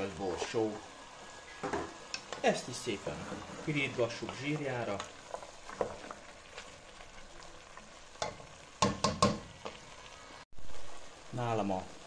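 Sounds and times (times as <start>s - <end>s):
food sizzling in fat: 0.0s - 12.0s
wooden spoon knocking and scraping pot: 3.0s - 6.2s, 8.2s - 9.7s.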